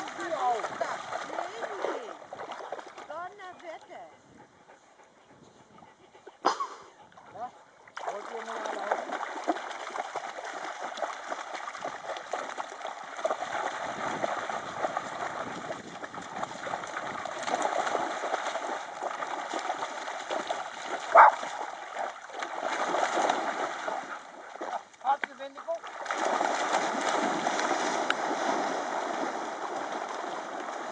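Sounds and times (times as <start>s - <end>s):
dogs splashing through water: 0.0s - 4.1s, 6.4s - 30.9s
loud dog bark: 21.1s - 21.4s.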